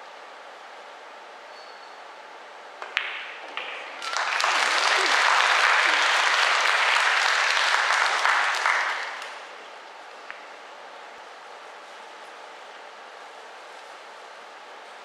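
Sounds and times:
pool balls clicking: 2.8s - 4.2s
audience applause: 3.6s - 9.6s.

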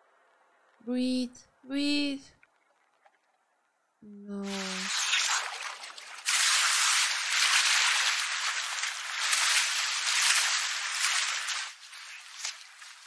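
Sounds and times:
rushing water: 4.4s - 13.0s.

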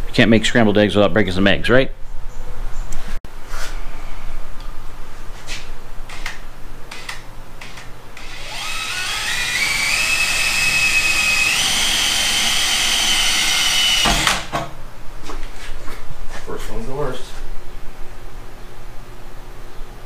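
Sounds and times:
drill clicks: 6.9s - 14.6s
drill motor whine: 7.7s - 14.5s.

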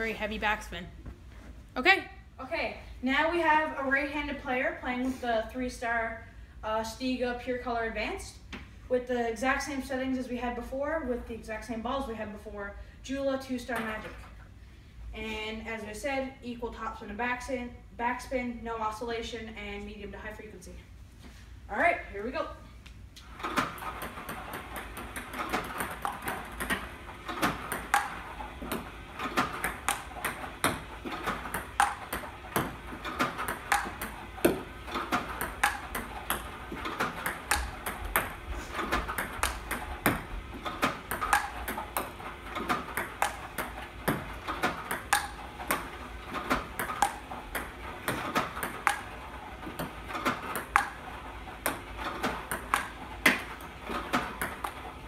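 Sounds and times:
table tennis balls clicking: 23.2s - 55.0s.

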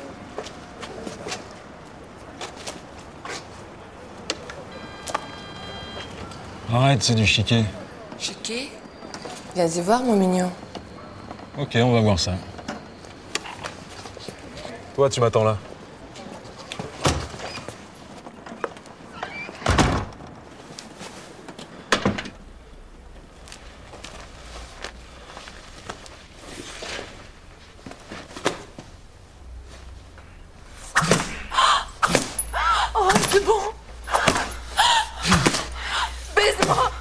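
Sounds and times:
door thuds: 19.6s - 20.2s
voices: 22.4s - 37.0s.

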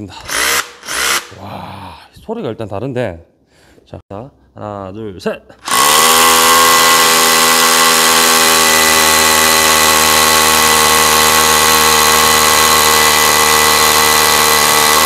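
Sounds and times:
rotary hammer drilling into concrete: 0.2s - 1.4s, 5.6s - 15.0s.

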